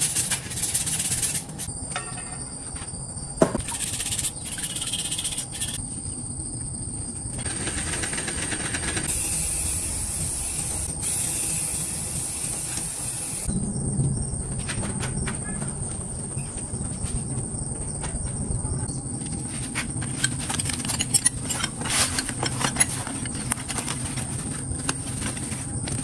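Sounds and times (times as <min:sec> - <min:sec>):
spray paint can hissing: 0:00.0 - 0:01.7, 0:03.6 - 0:05.8, 0:09.1 - 0:13.5
work sounds: 0:00.0 - 0:13.5, 0:19.1 - 0:26.0.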